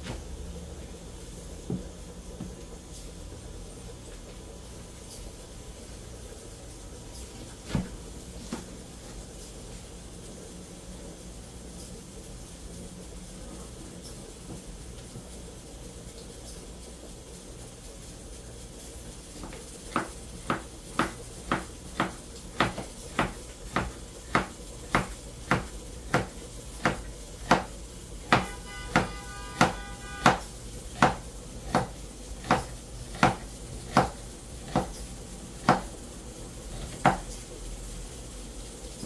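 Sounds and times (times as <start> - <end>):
knife chopping on cutting board: 7.6 - 8.7, 19.4 - 27.7, 28.3 - 35.0, 35.6 - 35.9, 36.7 - 37.3.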